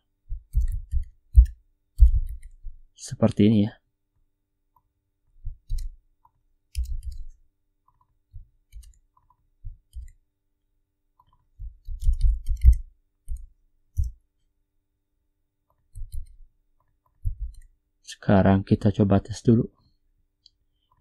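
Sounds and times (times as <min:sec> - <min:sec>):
keyboard typing: 0:00.3 - 0:02.7, 0:05.5 - 0:10.2, 0:11.2 - 0:14.2, 0:15.7 - 0:17.8.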